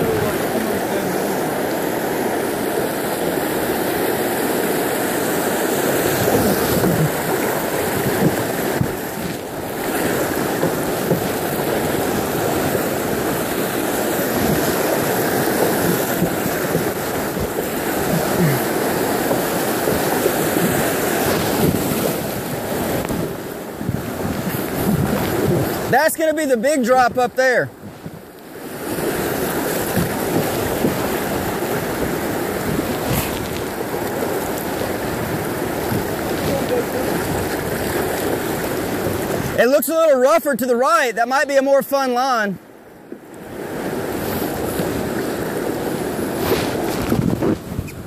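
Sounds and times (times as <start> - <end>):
river whitewater rushing: 0.0 - 48.0
water splashing around kayak: 0.0 - 48.0.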